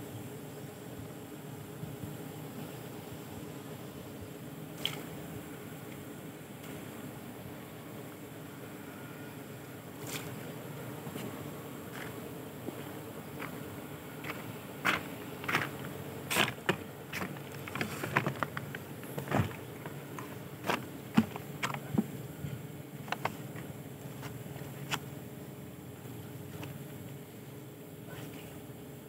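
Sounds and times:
steady low hum: 0.0 - 29.0
plastic bucket and scoop clattering: 16.4 - 22.1.

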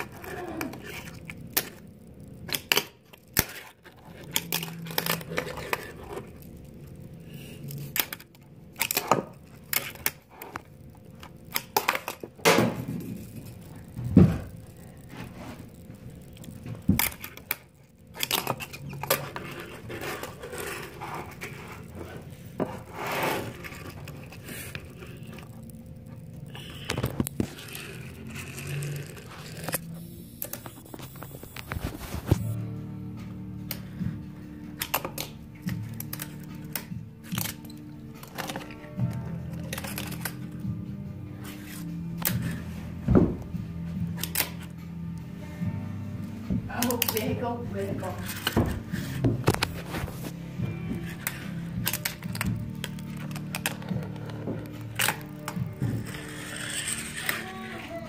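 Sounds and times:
fingerboard wheels scraping: 3.4 - 8.2, 13.3 - 32.6, 47.9 - 58.0.

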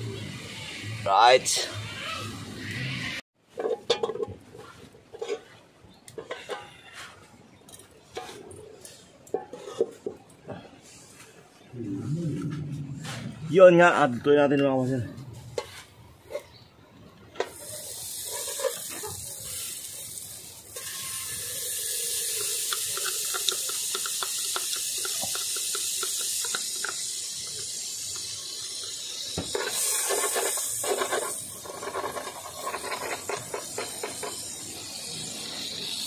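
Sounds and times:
liquid simmering hiss: 17.3 - 36.0
small clicks and knocks in pot: 22.3 - 28.4.

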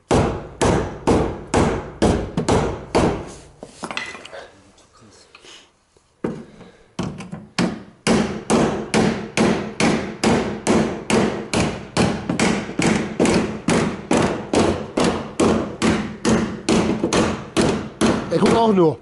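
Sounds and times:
hammer beating steel: 7.6 - 18.8.

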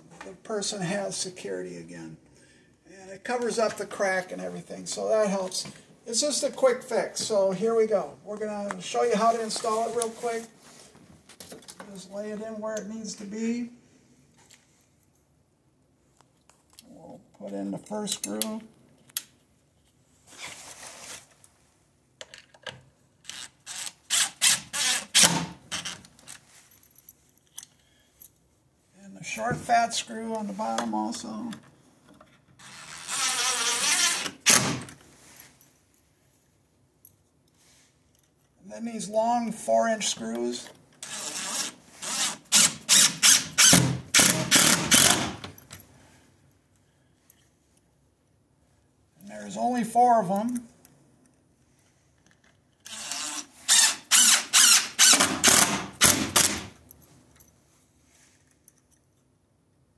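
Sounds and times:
impact driver driving screw: 23.3 - 26.0, 32.6 - 34.9, 41.0 - 45.5, 52.9 - 56.7.

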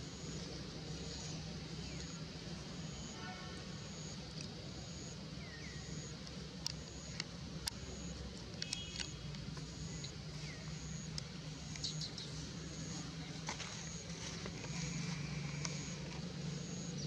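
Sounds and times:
steady low hum: 0.0 - 17.0
sharp clicks: 6.2 - 10.2.

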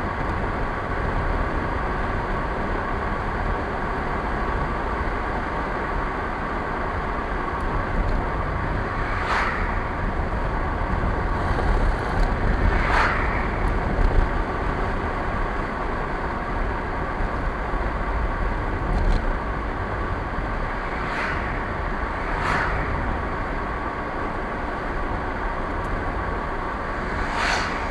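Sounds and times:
car road and engine noise: 0.0 - 27.9
brief swishes: 9.0 - 10.0, 12.6 - 13.7, 21.0 - 23.2, 26.9 - 27.9.

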